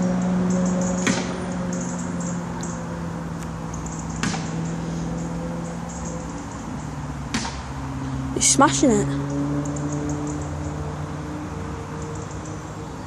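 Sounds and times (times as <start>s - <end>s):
distant thuds of kicks: 4.2s - 4.6s.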